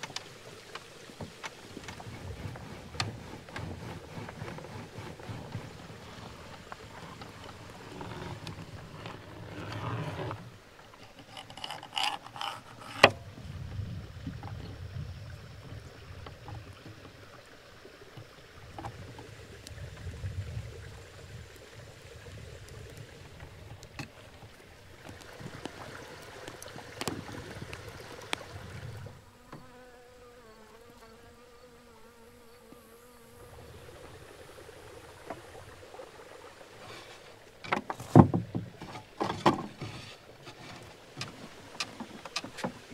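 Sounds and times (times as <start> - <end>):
fly buzzing: 28.7 - 35.1.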